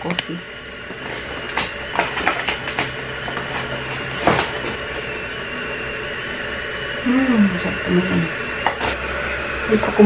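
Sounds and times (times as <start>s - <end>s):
steady background hum: 0.0s - 10.0s.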